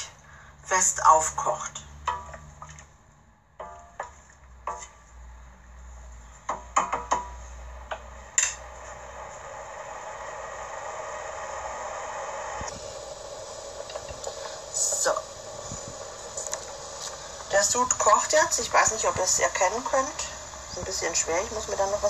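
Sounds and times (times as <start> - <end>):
heating brine hissing: 0.0 - 2.8, 4.0 - 22.0
wooden spoon knocking on pot: 6.5 - 8.6.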